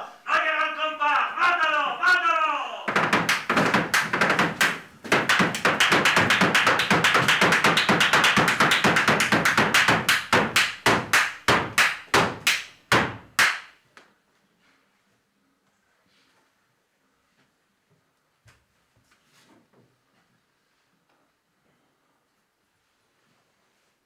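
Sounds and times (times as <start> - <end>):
feet stamping on wooden floor: 2.9 - 13.3.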